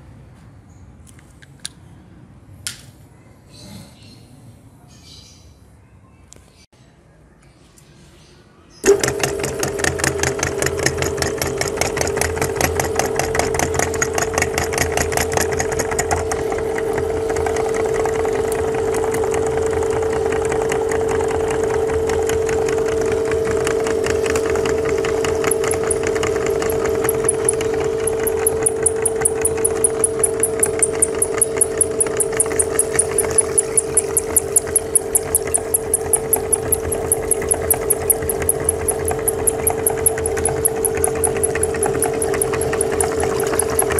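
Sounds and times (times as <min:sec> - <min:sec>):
meat grinder humming: 0:08.8 - 0:43.9
rapid clicking: 0:08.8 - 0:43.9.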